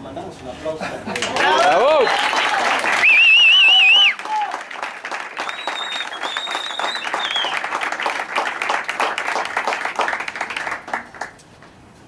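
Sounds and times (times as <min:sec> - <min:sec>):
audience applause: 0:01.2 - 0:11.4
high whistle: 0:03.0 - 0:04.2, 0:05.4 - 0:07.7.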